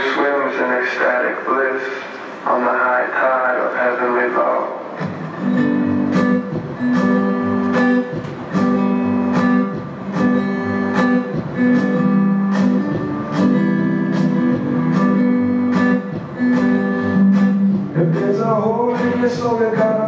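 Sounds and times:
acoustic guitar strumming: 4.9s - 20.0s.

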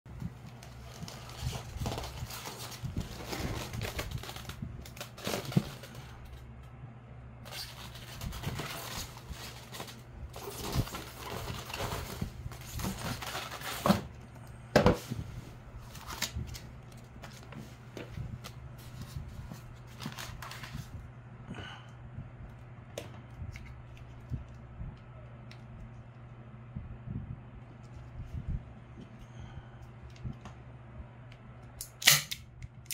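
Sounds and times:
steady low hum: 0.1s - 32.9s.

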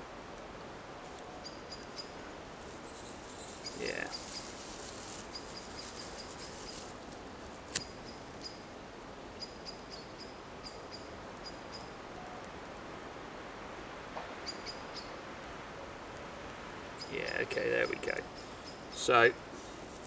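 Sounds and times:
woodland background: 0.0s - 20.0s
small bird chipping: 2.8s - 6.9s, 7.7s - 8.6s.

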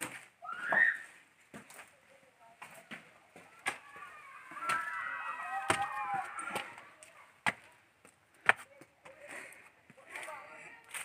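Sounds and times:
footsteps on loose stones: 0.0s - 11.0s.

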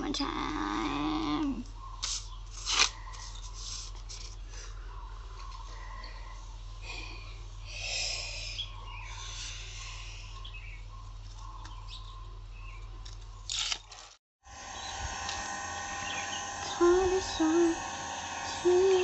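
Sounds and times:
paper rustling: 2.0s - 4.5s
steady low hum: 14.4s - 19.0s
high chirring: 14.5s - 19.0s.

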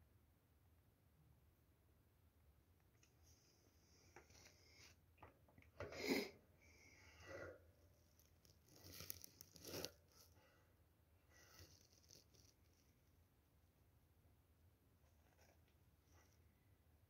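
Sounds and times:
hamster rustling in wood shavings: 8.2s - 10.2s.

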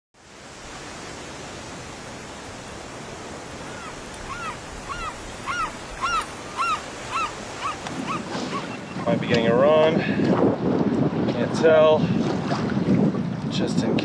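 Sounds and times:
ocean surf: 0.2s - 13.4s
wind: 0.2s - 14.0s
bird calling: 3.5s - 9.4s.

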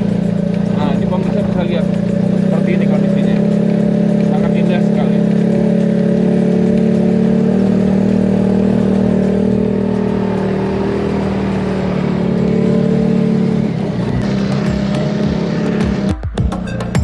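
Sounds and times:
buggy engine droning: 0.0s - 17.0s.

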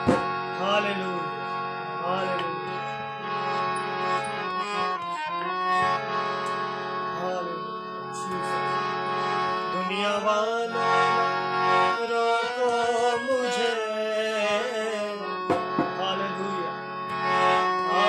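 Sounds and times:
drum strokes: 0.0s - 0.3s, 15.5s - 16.0s
harmonium chords: 0.0s - 18.0s
man singing: 0.5s - 3.5s, 4.4s - 6.0s, 7.1s - 9.0s, 9.6s - 16.8s, 17.6s - 18.0s.

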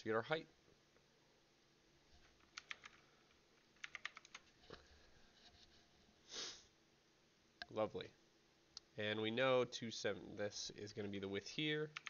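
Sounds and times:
computer keyboard typing: 2.2s - 3.1s, 3.7s - 4.5s.

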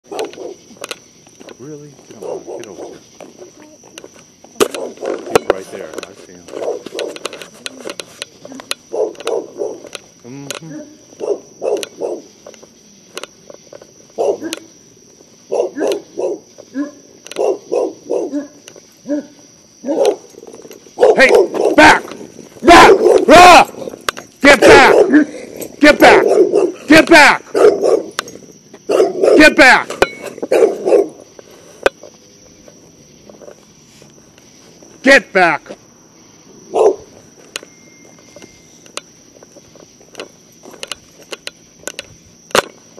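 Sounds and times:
dog barking aggressively: 0.0s - 0.7s, 2.1s - 3.0s, 4.6s - 5.4s, 6.5s - 7.2s, 8.4s - 10.0s, 10.7s - 12.4s, 14.1s - 14.7s, 15.5s - 28.3s, 28.9s - 31.3s, 36.7s - 37.1s
footsteps: 0.0s - 17.6s, 18.5s - 26.0s, 27.9s - 35.9s, 36.8s - 42.9s
crickets chirping: 0.0s - 42.9s.

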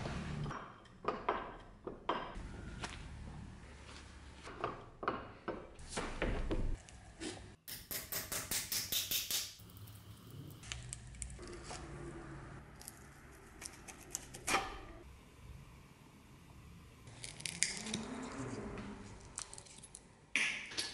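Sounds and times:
hand tools knocking on wood: 0.5s - 2.4s.

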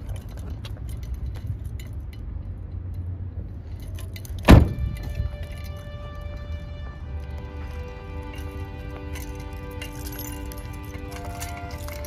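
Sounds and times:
low steady rumble: 0.0s - 12.0s
loud thump: 4.5s - 5.2s.

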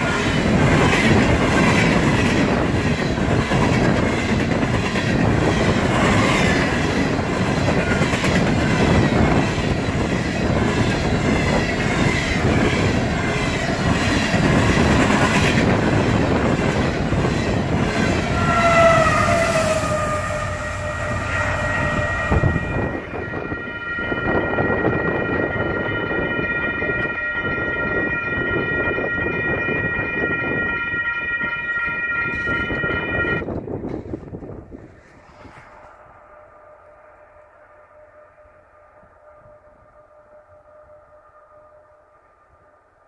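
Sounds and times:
train wheels clacking on rail joints: 0.0s - 19.7s
train wheels squealing: 0.0s - 33.5s
crossing warning bell ringing: 15.7s - 33.5s.

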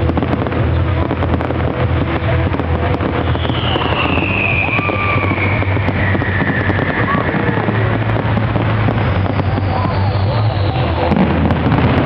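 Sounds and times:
fireworks crackling bangs: 0.0s - 12.0s
low rumble: 0.0s - 12.0s
falling firework whistle: 3.0s - 12.0s.

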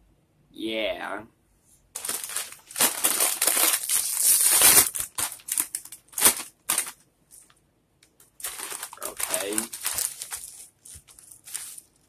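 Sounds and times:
snack bag crinkling: 2.0s - 7.5s, 8.3s - 12.0s.

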